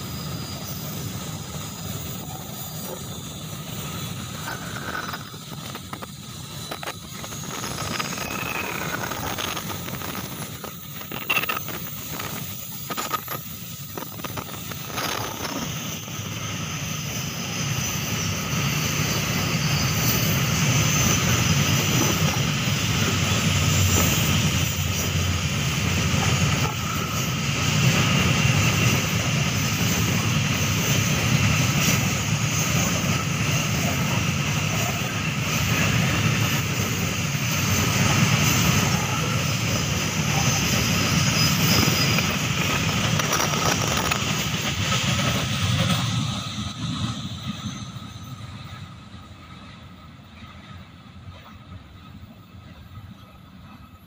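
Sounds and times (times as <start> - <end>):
train wheels rumbling on rails: 0.0 - 54.0.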